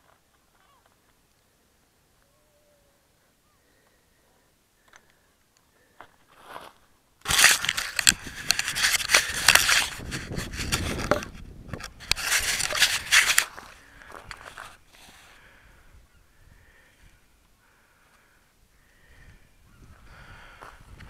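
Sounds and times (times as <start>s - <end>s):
camera handling noise in grass: 6.4s - 15.4s.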